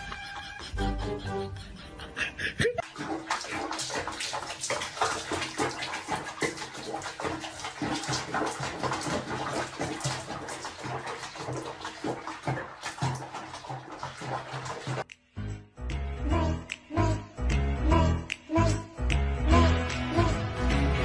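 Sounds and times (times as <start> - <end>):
water splashing: 2.8 - 15.1.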